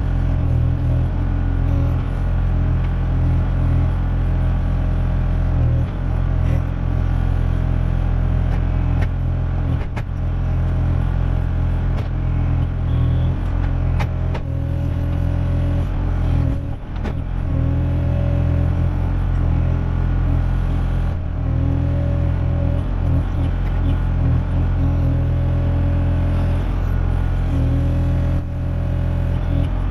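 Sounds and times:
diesel engine running under load: 0:00.0 - 0:29.9
hydraulic whine: 0:05.4 - 0:29.9.

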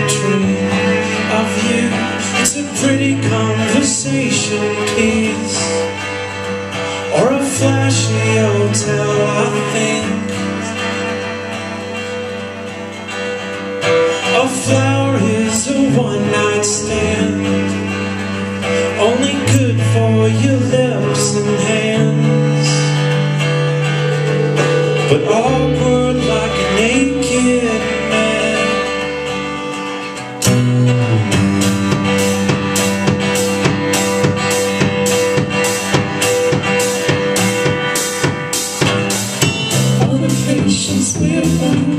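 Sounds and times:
man singing: 0:00.0 - 0:11.4, 0:14.0 - 0:23.2, 0:24.9 - 0:29.7, 0:39.8 - 0:41.9
bass notes: 0:00.0 - 0:41.9
strummed acoustic guitar: 0:00.0 - 0:41.9
drum kit beat: 0:22.9 - 0:27.5, 0:30.4 - 0:41.9.

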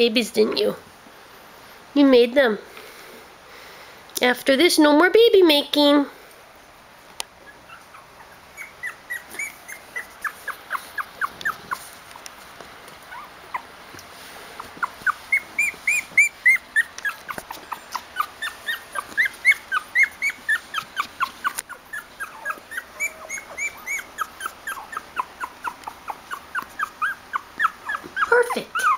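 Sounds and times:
puppies whimpering: 0:07.4 - 0:12.0, 0:13.0 - 0:13.7, 0:14.5 - 0:28.9.

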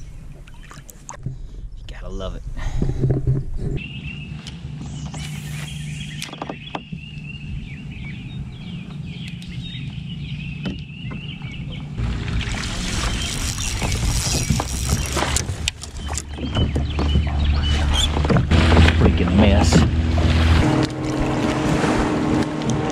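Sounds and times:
high warbling chirping: 0:03.8 - 0:18.1
rushing noise with splashes: 0:12.0 - 0:15.7, 0:17.8 - 0:22.9
fishing reel cranking: 0:12.7 - 0:16.2.

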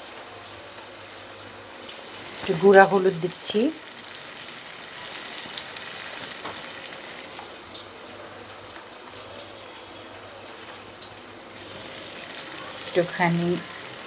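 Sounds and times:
fruit sizzling in oil: 0:00.0 - 0:14.0.

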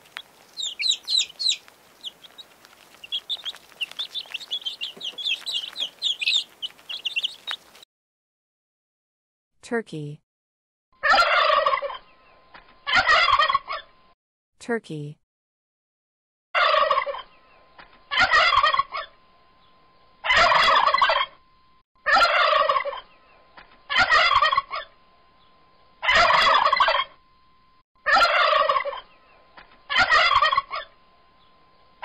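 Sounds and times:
turkey gobbling: 0:00.0 - 0:07.8, 0:11.0 - 0:12.1, 0:12.9 - 0:13.9, 0:16.6 - 0:17.4, 0:18.1 - 0:19.2, 0:20.2 - 0:21.4, 0:22.0 - 0:23.2, 0:23.9 - 0:25.0, 0:26.0 - 0:27.2, 0:28.0 - 0:29.2, 0:29.9 - 0:31.0.

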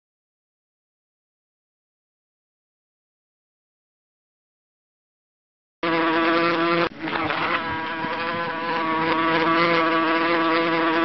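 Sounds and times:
housefly buzzing: 0:05.8 - 0:11.0.

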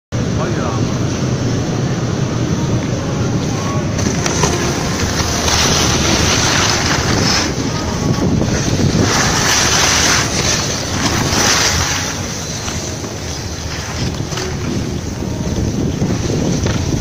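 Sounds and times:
wind on microphone: 0:00.2 - 0:17.0
snowboard scraping on snow: 0:04.0 - 0:17.0.

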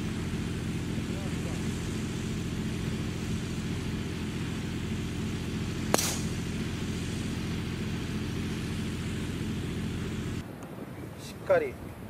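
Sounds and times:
low mechanical hum: 0:00.0 - 0:12.0
golf club striking ball: 0:02.1 - 0:08.9.

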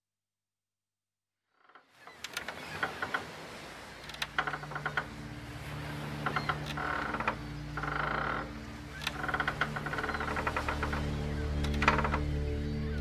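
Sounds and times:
creaking wooden ship timbers: 0:01.6 - 0:13.0
low music drone: 0:04.4 - 0:13.0.

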